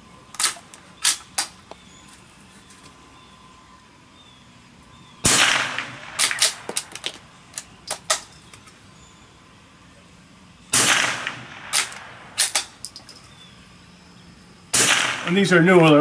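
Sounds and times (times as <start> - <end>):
rifle shots with echo: 5.2 - 6.9, 10.7 - 12.8, 14.7 - 15.6
metallic bolt clicks: 11.8 - 13.4.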